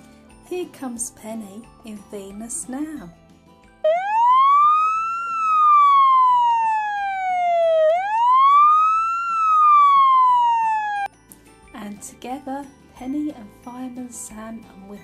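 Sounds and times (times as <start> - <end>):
toy truck electronic siren wailing: 3.8 - 11.1.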